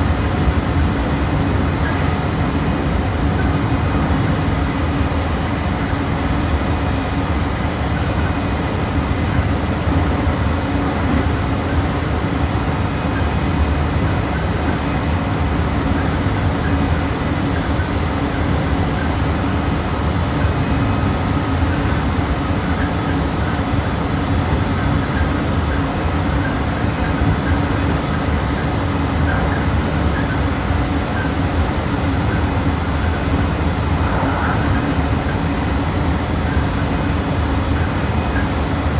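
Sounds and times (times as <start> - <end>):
train wheels rolling on rails: 0.0 - 38.9
low hum: 32.3 - 37.9.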